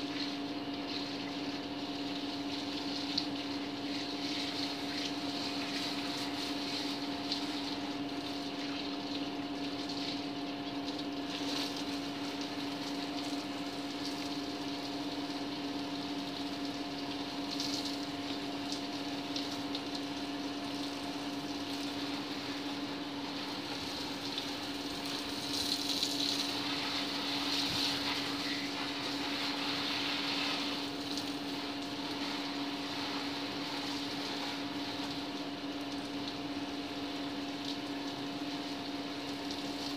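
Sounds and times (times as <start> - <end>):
electric water pump humming: 0.0 - 39.9.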